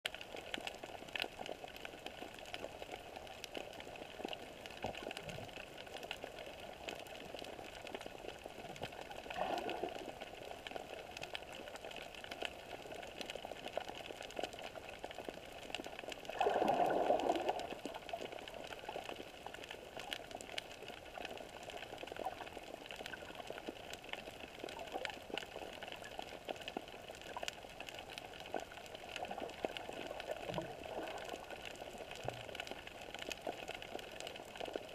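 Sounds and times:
underwater hiss with crackling clicks: 0.1 - 34.9
water swell: 16.3 - 18.2.

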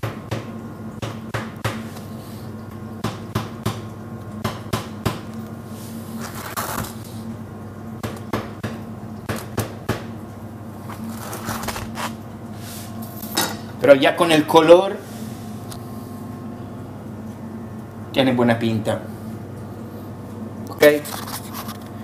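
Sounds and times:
handling rustle: 10.8 - 12.2.

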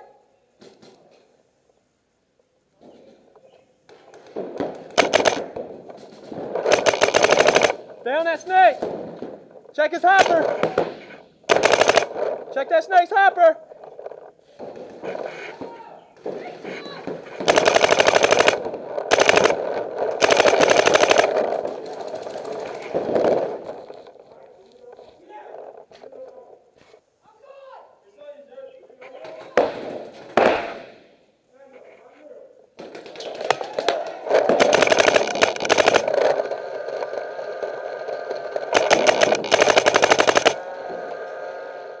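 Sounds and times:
paintball marker firing rapidly: 4.2 - 7.9, 10.1 - 12.5, 17.0 - 23.8, 32.8 - 37.2, 38.2 - 40.6.

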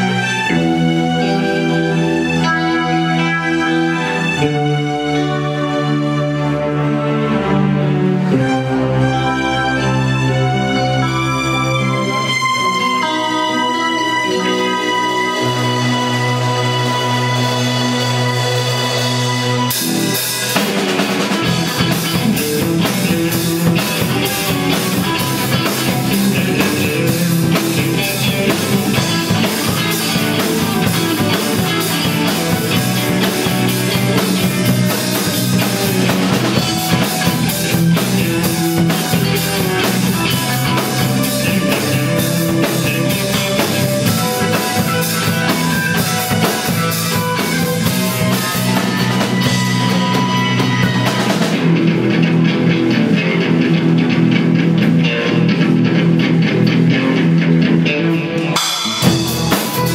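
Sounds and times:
live rock band playing: 0.0 - 59.9
drum kit steady beat: 18.9 - 52.1, 58.5 - 59.9.

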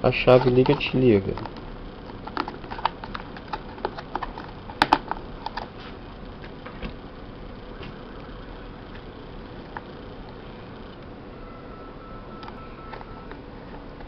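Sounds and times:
faint steady hum: 0.0 - 14.0
plastic parts clicking and tapping: 0.3 - 5.7.

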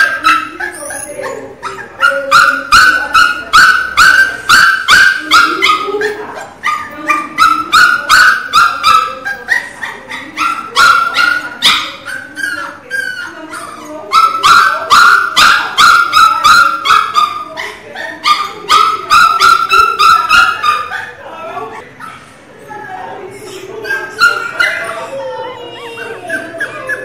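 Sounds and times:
puppy yelping: 0.0 - 27.0.

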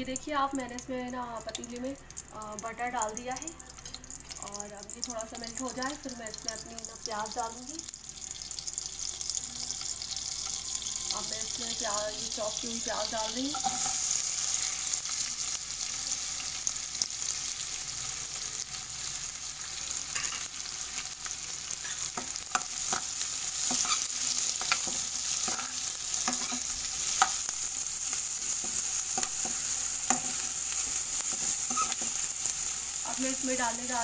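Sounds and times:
onions sizzling in a pot: 0.0 - 34.0
spoon scraping and knocking pot: 13.5 - 14.0, 24.6 - 27.4, 31.3 - 32.2.

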